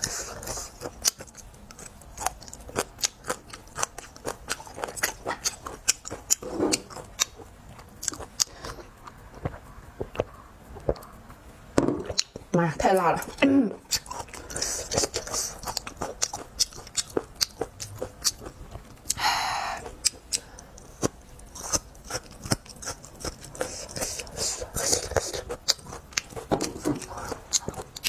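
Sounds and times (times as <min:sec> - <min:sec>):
close chewing with mouth clicks: 0:00.0 - 0:11.4, 0:12.1 - 0:28.0.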